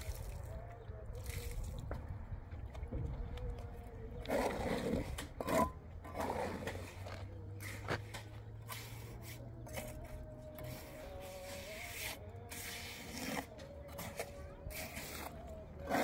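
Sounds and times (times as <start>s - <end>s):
trowel scraping wet cement: 4.2s - 16.0s.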